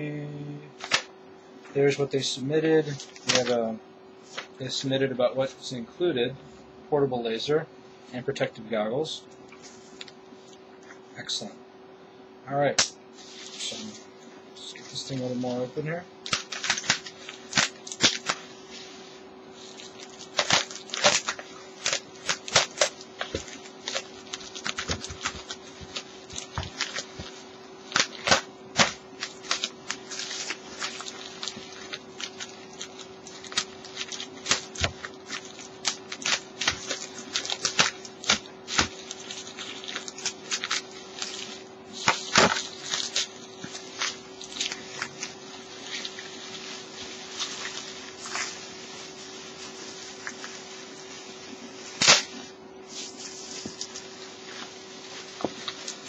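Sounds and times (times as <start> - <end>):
bubble wrap crinkling: 0.8 - 1.1, 2.8 - 4.8, 13.1 - 15.5, 16.2 - 56.0.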